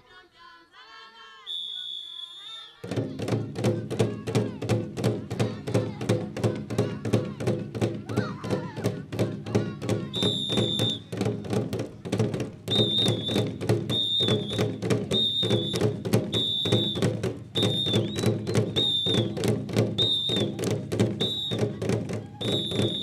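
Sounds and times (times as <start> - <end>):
shrill whistle blasts: 1.4 - 2.8, 10.1 - 11.1, 12.7 - 20.6, 21.2 - 21.7, 22.4 - 23.0
drums in fast rhythm: 2.8 - 23.0.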